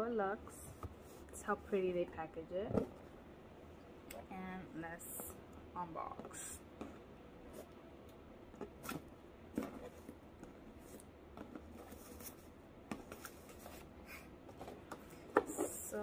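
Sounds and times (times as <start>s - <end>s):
ribbon rustling and scraping: 8.6s - 15.8s.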